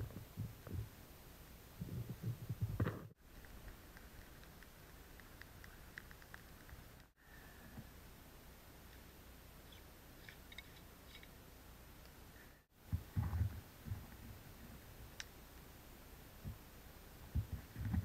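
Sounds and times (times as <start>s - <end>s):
low thuds and rustling: 1.8s - 3.2s, 12.8s - 14.4s, 17.3s - 18.0s.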